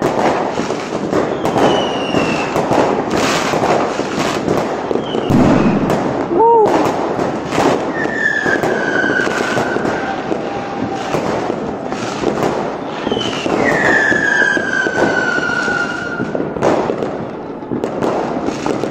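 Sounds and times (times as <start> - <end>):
fireworks crackling and banging: 0.0 - 18.9
firework whistles falling in pitch: 1.0 - 2.6, 4.8 - 6.8, 7.8 - 11.4, 12.8 - 16.4.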